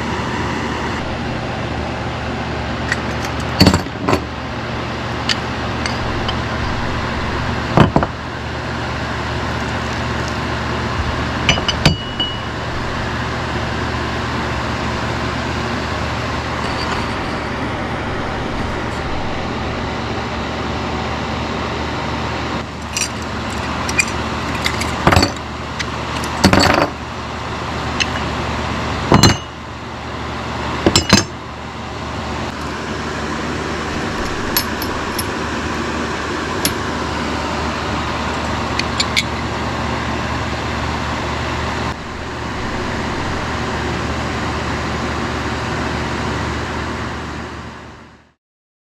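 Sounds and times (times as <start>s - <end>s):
low hum: 0.0s - 21.9s, 32.5s - 39.5s, 40.6s - 45.5s
metal plates clinking: 5.3s - 8.1s, 11.4s - 15.2s, 34.0s - 35.4s.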